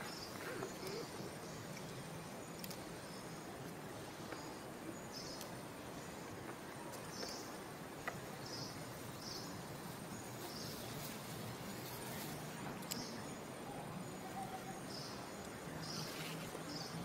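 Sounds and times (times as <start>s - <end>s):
outdoor background noise: 0.0s - 17.0s
light clicks: 12.7s - 13.1s.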